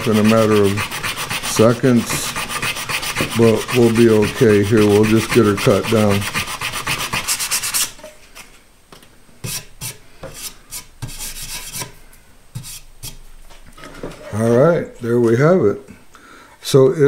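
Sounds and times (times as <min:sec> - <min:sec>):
hand sanding strokes: 0:00.0 - 0:08.0, 0:09.4 - 0:11.9.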